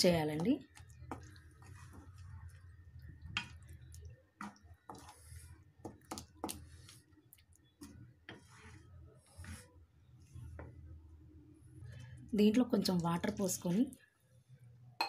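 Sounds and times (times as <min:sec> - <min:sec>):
spatula stirring thick gravy: 0:00.1 - 0:12.0
spatula scraping pan: 0:00.7 - 0:02.7, 0:04.4 - 0:07.2, 0:07.8 - 0:10.8.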